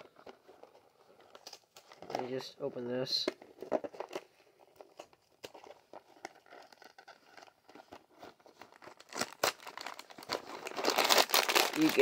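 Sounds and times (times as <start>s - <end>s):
cardboard rustling: 3.3s - 12.0s.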